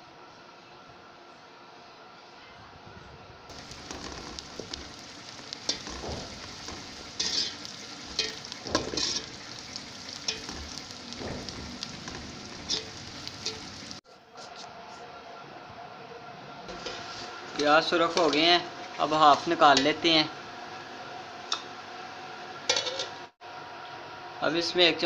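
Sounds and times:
onions sizzling in oil: 3.5 - 14.0, 16.7 - 23.3
metal spoon scraping pot: 5.7 - 9.4.

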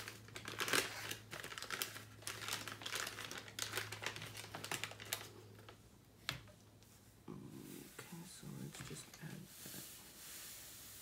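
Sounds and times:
packet crinkling and tearing: 0.0 - 5.8.

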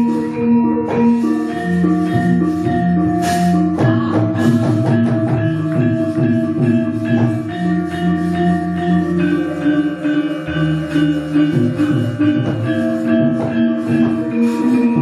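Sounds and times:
metallophones ringing: 0.0 - 15.0
sharp percussive strikes: 0.0 - 15.0.

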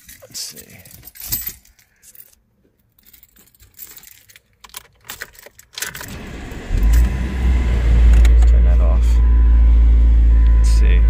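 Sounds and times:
keys jangling: 0.0 - 6.1
car engine starting and running: 5.8 - 11.0.

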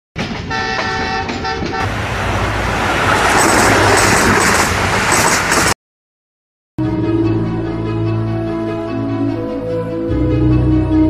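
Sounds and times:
loud rushing noise: 1.8 - 5.8.

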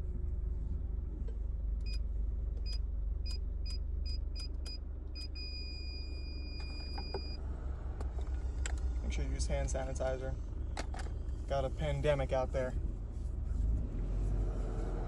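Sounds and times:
keypad beeps: 2.7 - 7.4
car engine idling: 6.5 - 13.8.

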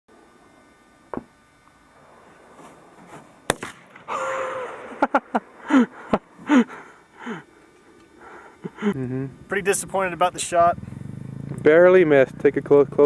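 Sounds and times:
rifle shot cracking: 3.5 - 4.1
short sharp cracks: 3.5 - 4.2
falling-pitch calls: 4.0 - 11.5.

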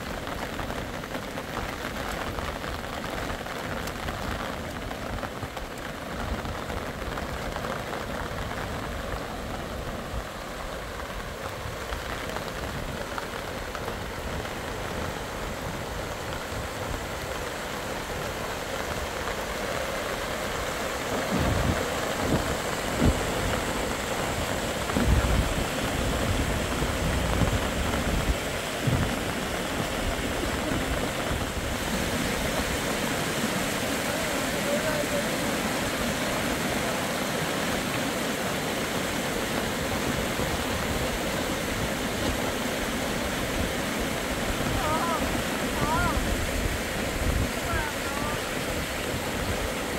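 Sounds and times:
heavy rain: 0.0 - 49.9
low thumps and rumbles: 24.8 - 31.5.

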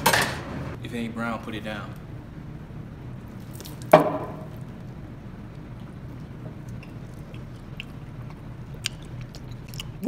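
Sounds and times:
low room hum: 0.0 - 10.0.

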